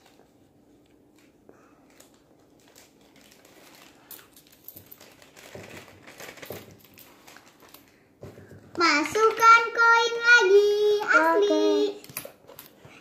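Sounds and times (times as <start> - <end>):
cardboard box crinkling: 2.1 - 7.9.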